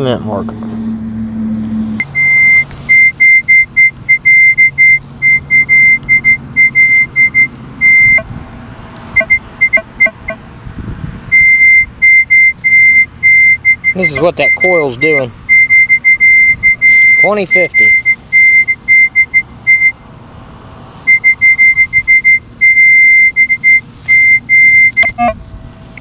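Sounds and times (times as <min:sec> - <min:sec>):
metal detector low chirps: 0:00.0 - 0:08.3, 0:09.2 - 0:10.4, 0:11.3 - 0:20.0, 0:21.0 - 0:26.0
metal detector high-pitched beeps: 0:01.7 - 0:08.3, 0:09.2 - 0:10.4, 0:11.3 - 0:19.9, 0:21.0 - 0:25.4.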